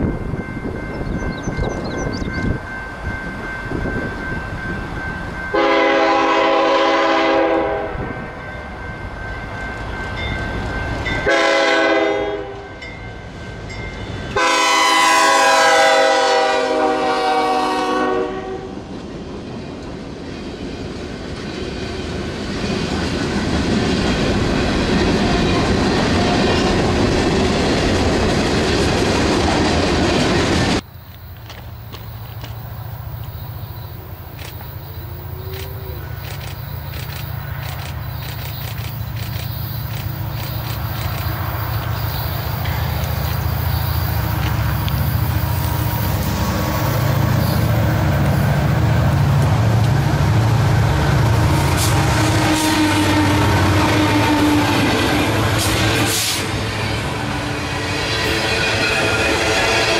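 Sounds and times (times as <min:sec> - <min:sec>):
locomotive horn blasts: 0:05.5 - 0:08.1, 0:11.2 - 0:12.8, 0:14.3 - 0:18.8, 0:51.4 - 0:57.6.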